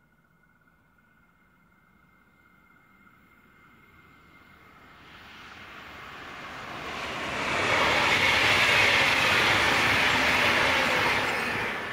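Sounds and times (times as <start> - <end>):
train passing at speed: 1.7 - 11.9.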